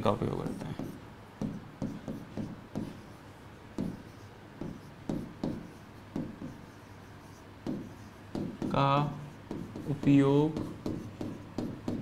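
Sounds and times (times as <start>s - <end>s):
stylus scratching on tablet: 0.3s - 12.0s
stylus tapping on tablet: 0.8s - 3.0s, 3.8s - 4.0s, 4.6s - 6.6s, 7.6s - 8.8s, 9.5s - 12.0s.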